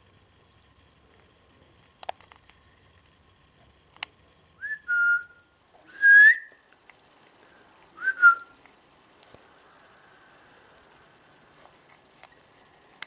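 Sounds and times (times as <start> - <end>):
person whistling high notes: 4.6 - 6.6, 8.0 - 8.5.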